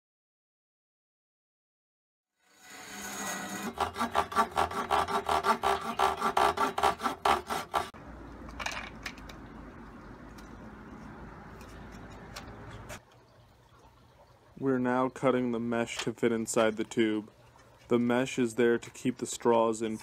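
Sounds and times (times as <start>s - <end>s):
miter saw cutting plastic: 2.4s - 8.0s.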